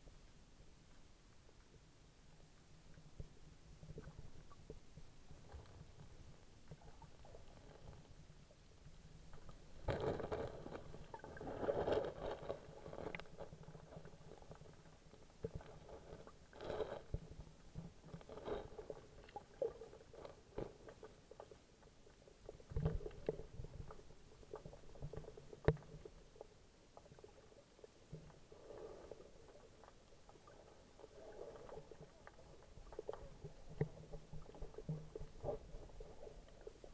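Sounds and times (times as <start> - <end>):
muffled underwater sloshing: 2.8 - 36.9.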